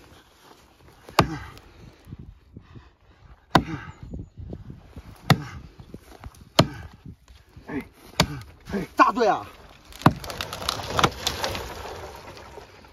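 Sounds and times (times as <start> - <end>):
hatchet chopping tree trunk: 1.0 - 1.6, 3.5 - 3.9, 5.1 - 7.4, 8.0 - 9.1, 9.8 - 11.6.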